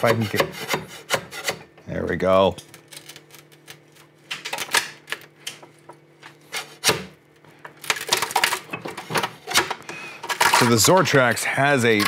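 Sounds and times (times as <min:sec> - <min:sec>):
spatula scraping plastic print: 0:10.2 - 0:12.0.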